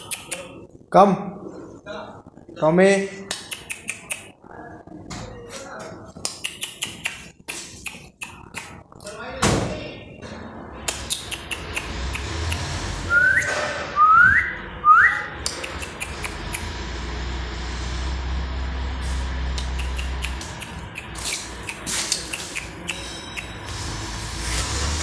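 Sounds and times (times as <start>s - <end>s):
person whistling rising whistles: 13.1s - 15.2s.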